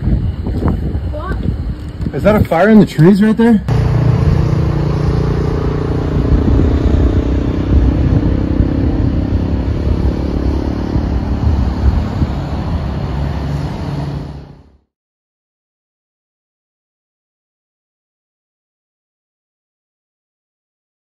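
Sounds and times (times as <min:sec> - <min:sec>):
low rumble with hum: 0:03.0 - 0:14.8.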